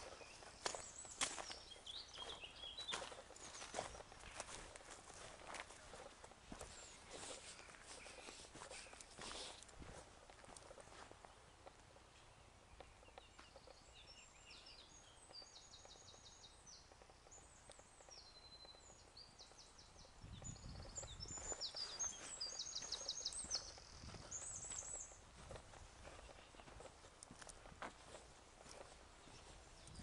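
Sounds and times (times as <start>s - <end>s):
footsteps on gravel: 0.0s - 11.3s, 21.2s - 30.0s.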